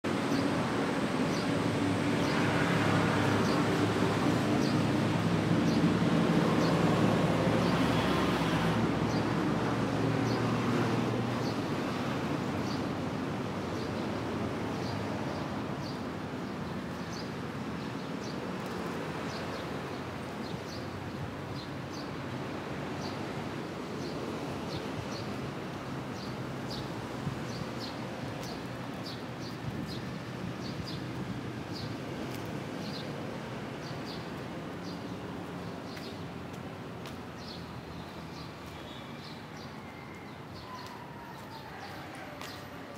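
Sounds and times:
low traffic hum: 0:00.0 - 0:42.9.

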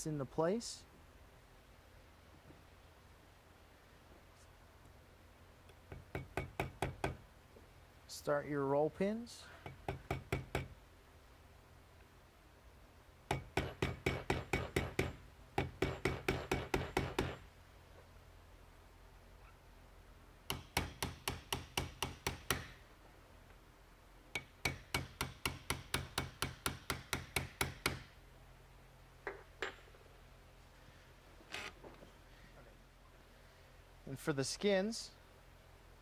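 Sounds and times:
small hammer tapping steel pins: 0:09.6 - 0:10.7, 0:20.5 - 0:22.8, 0:24.4 - 0:28.1.

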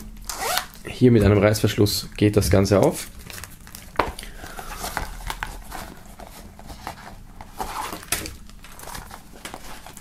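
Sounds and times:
plastic and paper rustling: 0:02.5 - 0:10.0.

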